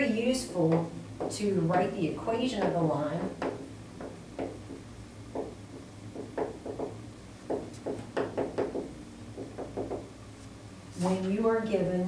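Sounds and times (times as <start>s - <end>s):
low steady hum: 0.0s - 12.0s
marker writing on a whiteboard: 7.5s - 10.1s.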